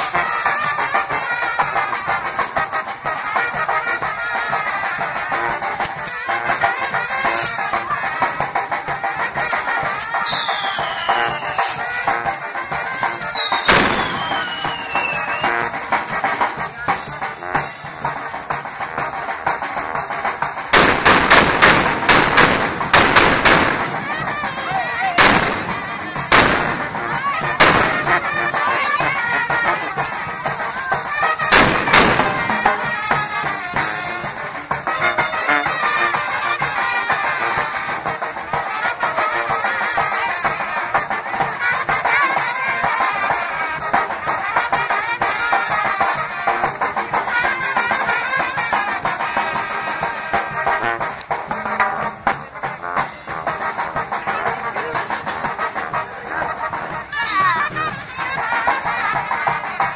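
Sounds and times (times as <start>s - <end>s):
brass band music: 0.0s - 59.9s
firecracker bangs: 10.2s - 16.2s, 20.7s - 28.4s, 31.4s - 33.2s.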